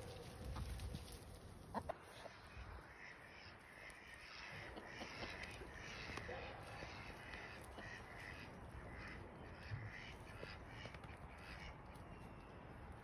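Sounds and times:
crows cawing: 2.5 - 12.3.

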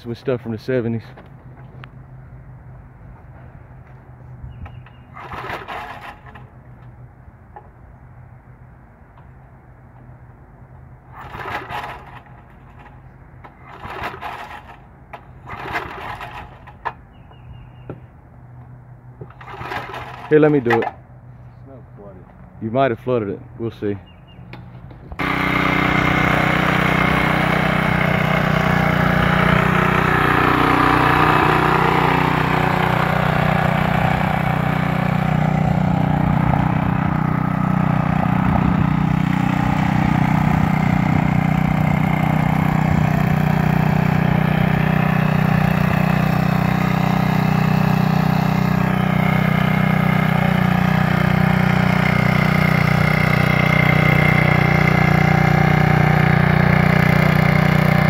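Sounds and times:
tiller engine running: 4.6 - 6.9, 11.0 - 17.1, 19.2 - 20.9, 25.1 - 58.0.

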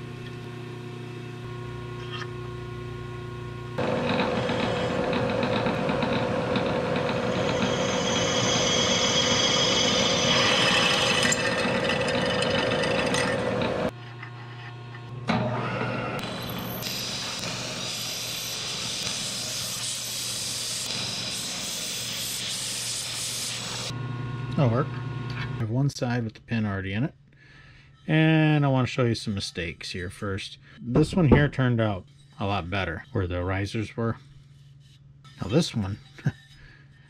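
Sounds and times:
high-pitched metal cutting: 3.8 - 13.9, 16.2 - 23.9
milling machine running: 3.8 - 13.9.

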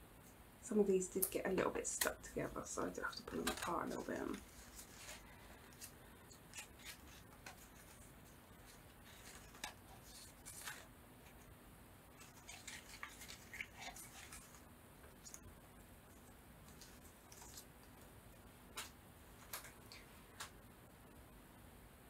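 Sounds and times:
paper rustling: 3.2 - 11.5, 12.2 - 15.4, 16.1 - 18.1.

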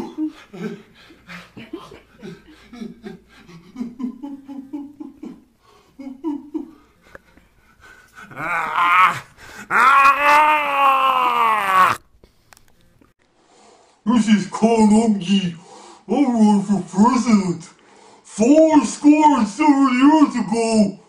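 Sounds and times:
man grunting: 8.3 - 12.0.

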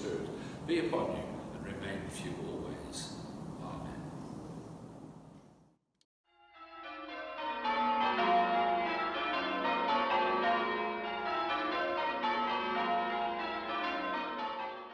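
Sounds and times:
church bells ringing: 6.4 - 14.9.

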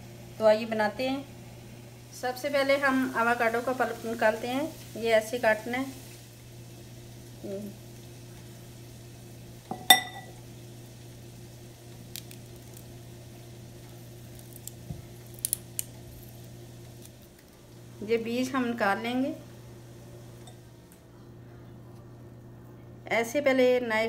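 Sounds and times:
glass bowl clink: 9.7 - 10.4.

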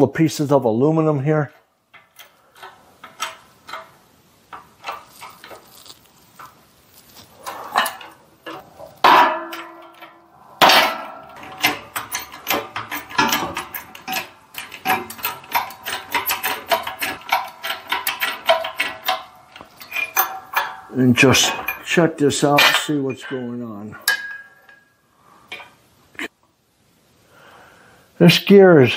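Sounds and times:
shop press metal clanking: 7.7 - 23.1
loud ringing clanks: 9.0 - 23.4.

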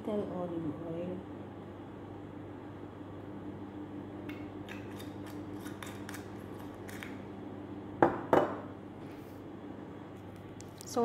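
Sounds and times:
steady low hum: 0.0 - 11.0
bottle knocking on stone counter: 8.0 - 8.6.

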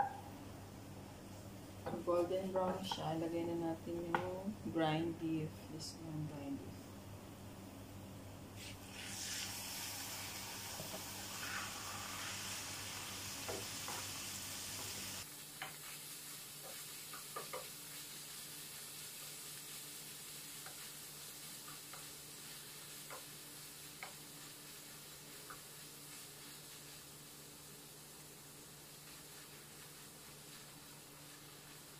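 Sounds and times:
meat sizzling in a frying pan: 8.6 - 31.9
spatula tapping pan: 15.6 - 16.0, 16.6 - 17.8, 20.6 - 20.9, 21.6 - 24.3.

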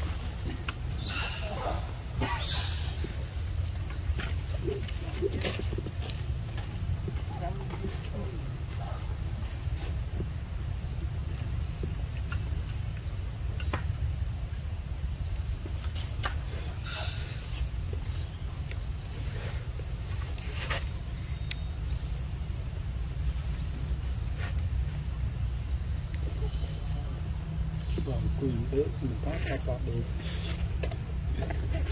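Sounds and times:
forest insects droning: 0.0 - 31.9.

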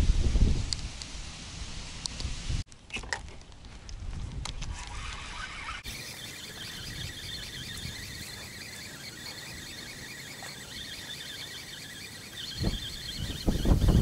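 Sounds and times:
wind rumble: 0.0 - 2.7, 6.5 - 14.0
insects chirring: 5.7 - 14.0.

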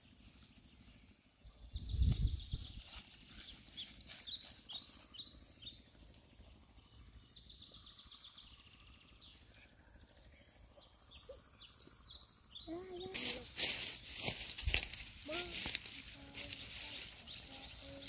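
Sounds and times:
dry reeds rustling: 0.0 - 1.1, 1.9 - 6.9, 12.7 - 18.0.

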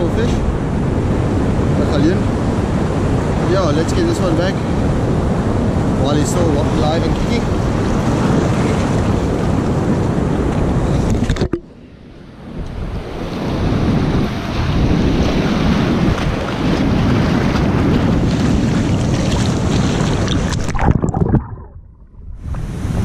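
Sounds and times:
wind on microphone: 0.0 - 23.0
sea surf washing over rocks: 12.8 - 21.6
water splashes: 14.2 - 22.8.

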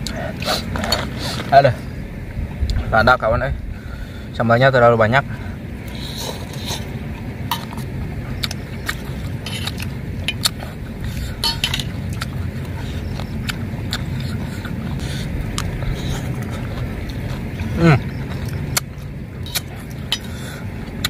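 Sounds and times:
low rumble: 0.0 - 21.0
slurping: 5.8 - 21.0
spoons clinking against metal bowls: 11.4 - 12.0.

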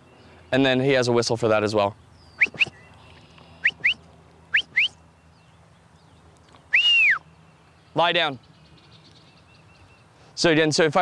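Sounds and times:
herding whistle: 2.4 - 2.8, 3.6 - 5.0, 6.7 - 7.3.

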